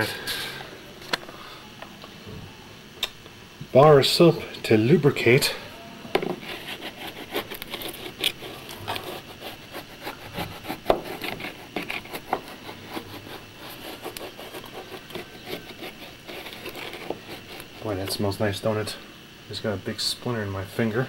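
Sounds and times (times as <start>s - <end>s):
soap scraping on wood: 6.2s - 18.2s.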